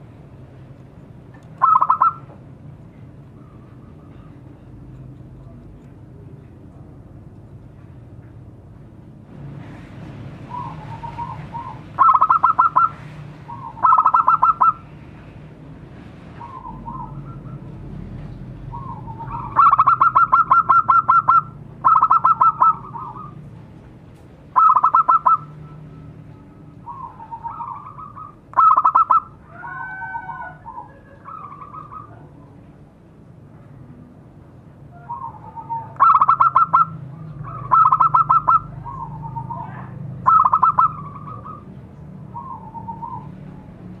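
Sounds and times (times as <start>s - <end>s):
loud rattling bird notes: 1.6s - 2.2s, 10.5s - 14.8s, 18.7s - 23.3s, 24.6s - 25.5s, 37.5s - 39.1s, 40.2s - 41.6s
dove cooing: 1.6s - 2.3s, 10.5s - 14.8s, 18.7s - 23.4s, 24.6s - 25.5s, 26.9s - 32.2s, 35.1s - 41.7s.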